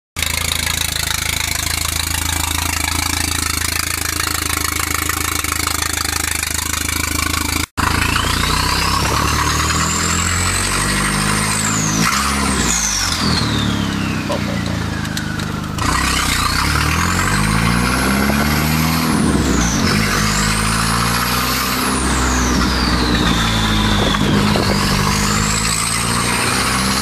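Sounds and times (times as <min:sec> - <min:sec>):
car engine idling: 0:00.2 - 0:27.0
car engine revving pulling away: 0:00.2 - 0:27.0
high turbo whistle: 0:07.8 - 0:27.0.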